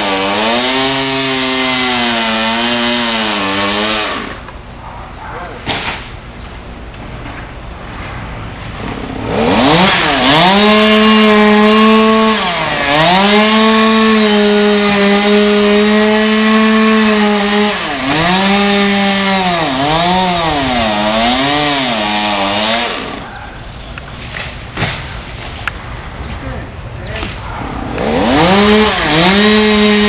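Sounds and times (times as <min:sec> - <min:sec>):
chainsaw revving: 0:00.0 - 0:04.5, 0:08.8 - 0:23.3, 0:27.7 - 0:30.0.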